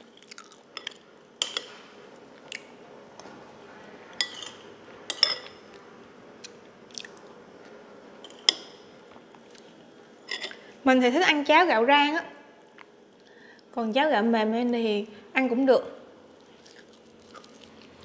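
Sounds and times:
chewing and mouth sounds: 16.4s - 18.0s.

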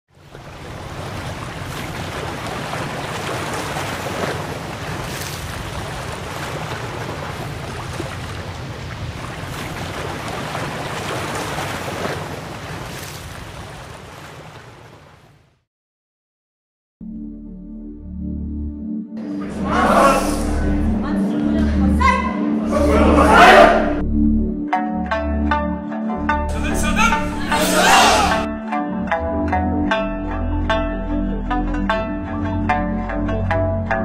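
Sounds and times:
ocean surf on rocky shore: 0.1s - 15.4s.

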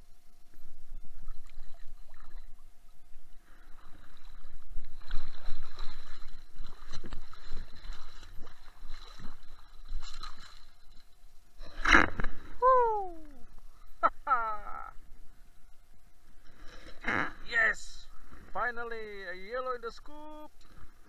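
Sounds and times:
muffled underwater surf sloshing: 0.3s - 14.0s, 18.0s - 19.2s.

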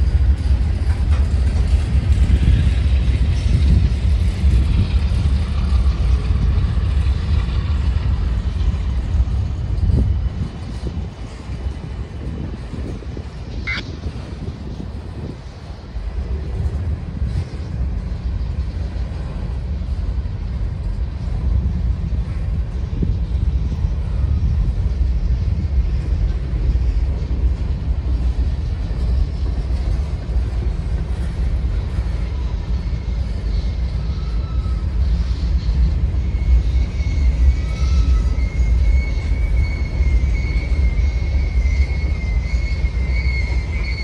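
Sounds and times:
freight train wheels rumbling: 0.0s - 44.0s
train wheels squealing: 0.0s - 44.0s.

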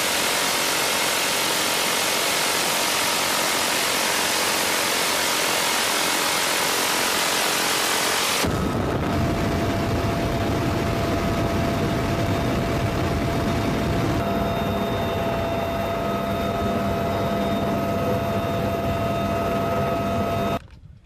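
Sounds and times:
helicopter rotor and engine rush: 0.0s - 20.7s
constant engine whine: 0.0s - 21.0s.

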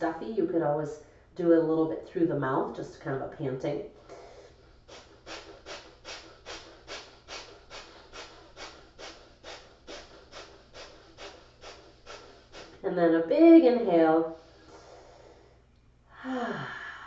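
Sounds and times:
rapid forceful breathing: 4.0s - 12.8s, 14.2s - 17.0s.

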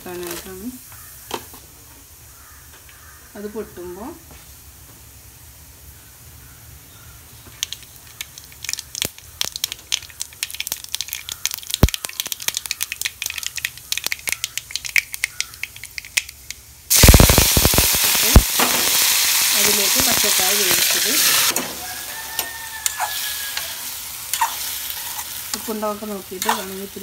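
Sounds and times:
leaves sizzling in hot oil: 0.0s - 1.3s, 7.6s - 27.0s
seeds popping in hot oil: 7.5s - 27.0s.

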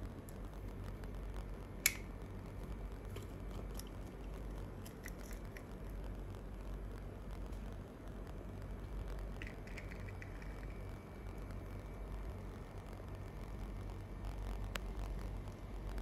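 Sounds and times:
steady low hum: 0.0s - 16.0s
sharp click: 1.8s - 2.1s.

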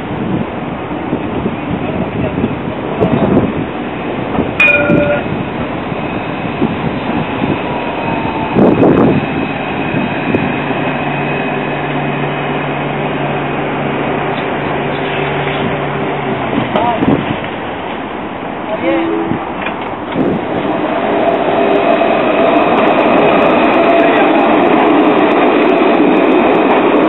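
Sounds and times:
electric tram hum: 0.0s - 27.0s
short metallic ring: 4.6s - 5.3s.

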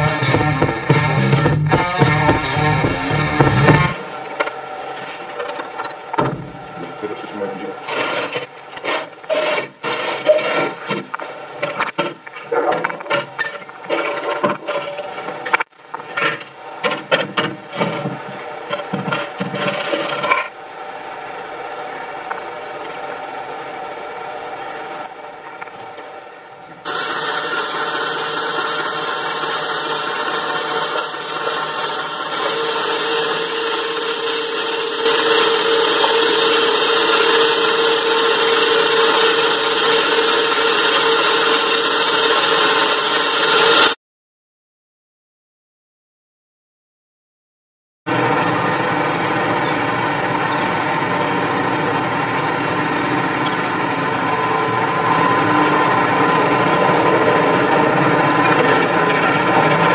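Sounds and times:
machine motor whining and humming: 0.0s - 11.6s, 26.8s - 44.0s, 48.1s - 59.9s
steady even mechanical noise: 48.1s - 59.9s.

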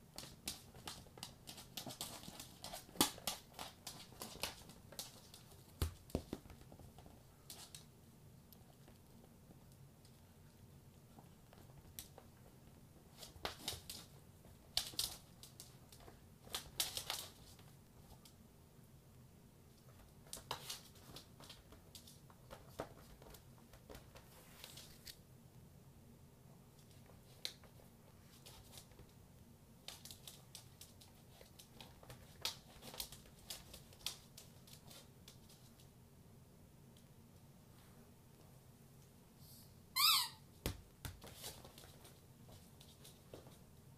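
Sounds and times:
faint low hum: 0.0s - 43.9s.

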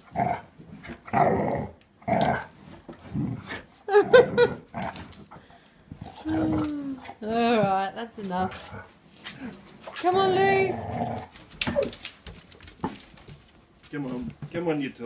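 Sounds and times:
dog growling in play: 0.0s - 5.4s, 6.0s - 7.8s, 10.2s - 11.9s.

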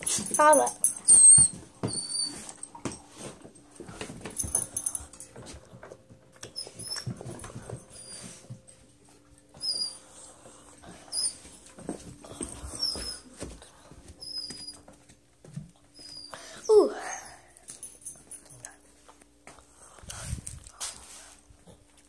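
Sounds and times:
dog whining: 0.3s - 2.8s, 6.4s - 7.3s, 9.5s - 10.3s, 10.9s - 11.6s, 12.6s - 13.3s.

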